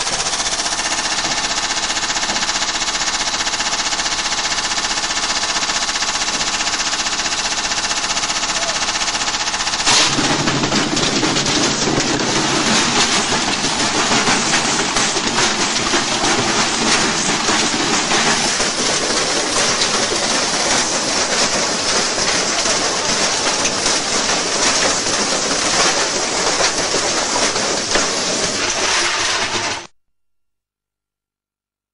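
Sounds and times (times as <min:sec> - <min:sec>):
washing machine clattering: 0:04.6 - 0:29.9.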